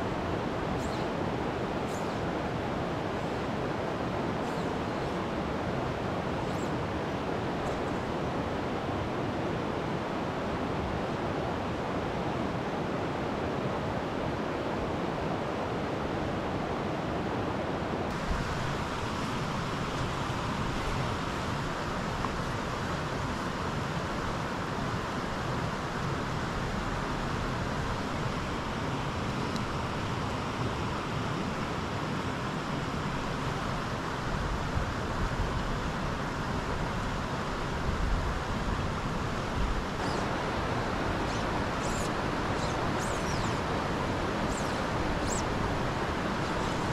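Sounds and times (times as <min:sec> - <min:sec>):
rocky creek flowing: 0:17.4 - 0:46.9.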